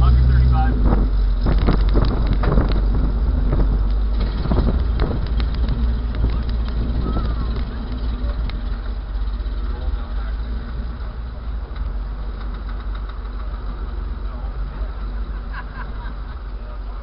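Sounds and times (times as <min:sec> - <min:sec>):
car engines idling: 0:00.0 - 0:17.0
knocks and rattles: 0:00.8 - 0:14.2.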